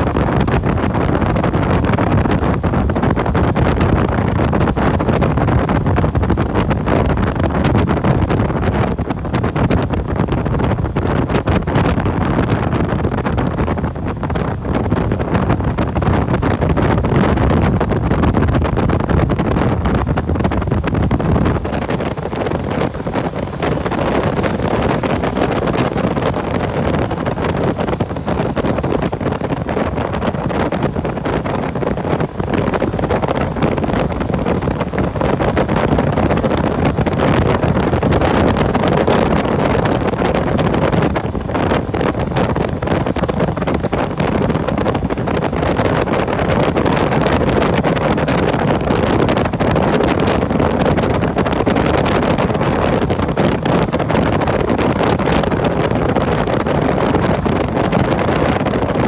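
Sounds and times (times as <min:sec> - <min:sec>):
wind buffeting microphone: 0:00.0 - 0:59.0
road noise: 0:18.6 - 0:59.0.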